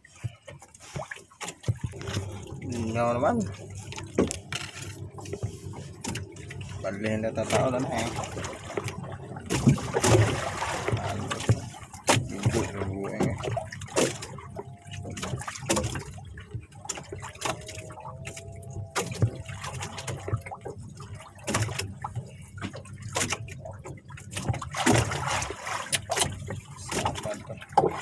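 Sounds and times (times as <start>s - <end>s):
water trickling and dripping: 0.0s - 28.0s
knocks and taps on wooden boat: 0.1s - 2.9s, 7.4s - 20.8s.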